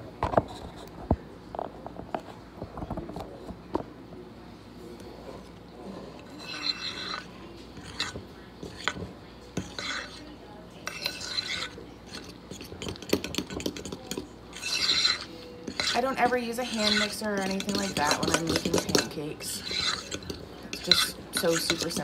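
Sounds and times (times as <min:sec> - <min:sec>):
fork scraping batter: 0:05.0 - 0:22.0
fork clinking against bowl: 0:10.8 - 0:22.0.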